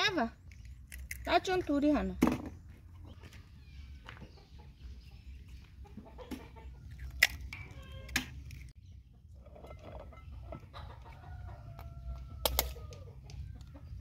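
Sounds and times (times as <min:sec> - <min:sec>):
chickens clucking: 0:03.0 - 0:08.2, 0:09.0 - 0:14.0.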